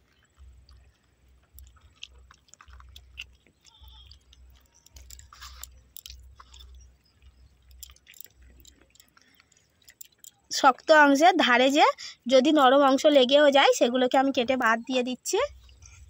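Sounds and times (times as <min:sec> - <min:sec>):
wet squelches and scrapes: 0:00.0 - 0:10.7
mussel shells clicking: 0:00.0 - 0:10.9.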